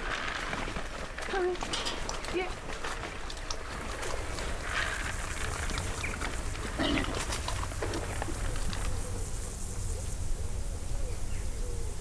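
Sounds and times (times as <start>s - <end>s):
pigs grunting and squealing: 6.6s - 8.2s.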